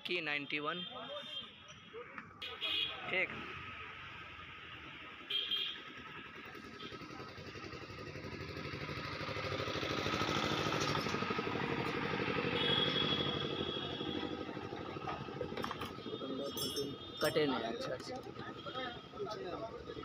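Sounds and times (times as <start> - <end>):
small engine running: 6.0 - 16.2.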